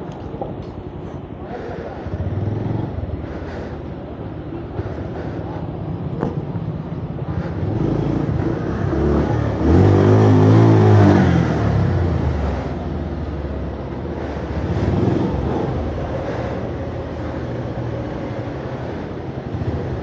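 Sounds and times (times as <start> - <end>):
motorcycle engine revving: 2.0 - 3.3, 5.8 - 20.0.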